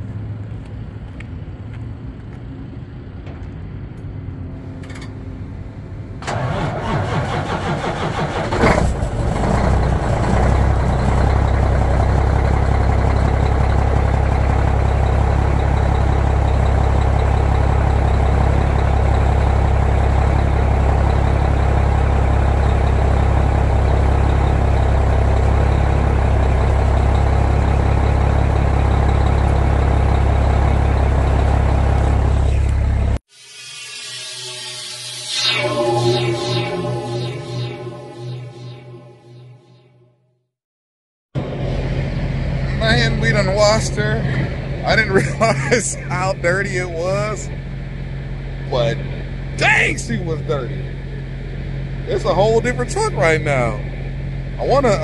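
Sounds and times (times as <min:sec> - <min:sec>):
diesel truck engine starting and idling: 0:02.9 - 0:33.2, 0:41.4 - 0:55.0.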